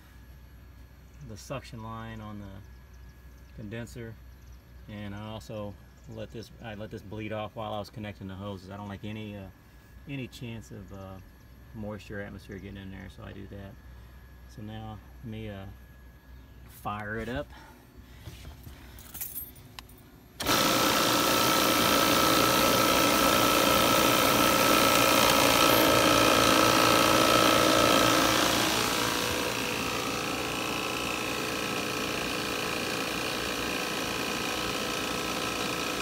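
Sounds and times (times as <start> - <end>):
refrigerant recovery machine running: 20.4 - 36.0.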